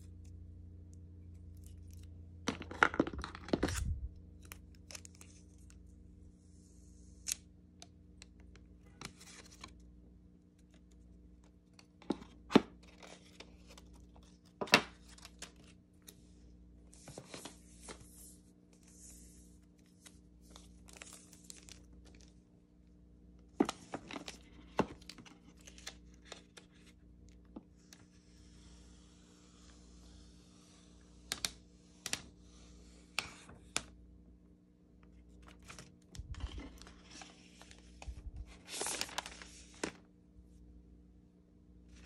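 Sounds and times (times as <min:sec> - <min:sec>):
paper packaging rustling: 0:02.5 - 0:05.4, 0:35.4 - 0:40.0
plastic film being peeled: 0:38.4 - 0:40.0.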